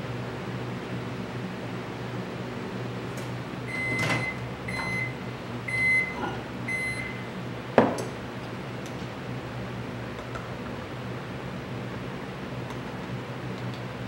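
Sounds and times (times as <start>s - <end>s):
microwave oven beeping: 3.1s - 7.6s.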